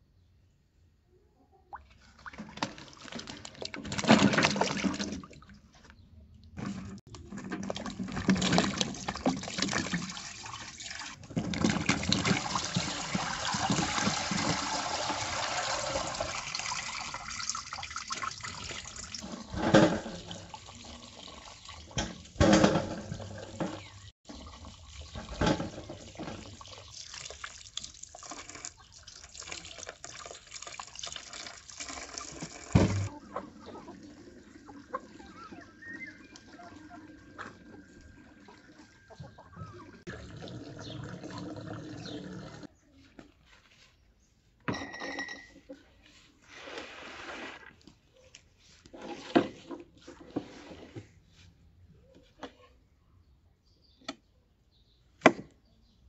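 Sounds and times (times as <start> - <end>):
running water splashing: 7.5 - 42.7.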